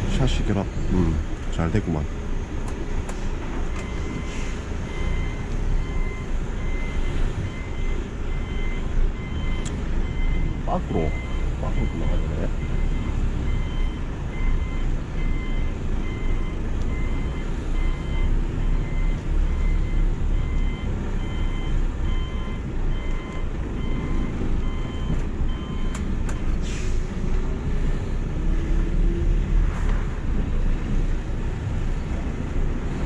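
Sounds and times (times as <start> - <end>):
diesel truck engine running: 0.0 - 33.0
electronic warning beeper: 3.8 - 26.0.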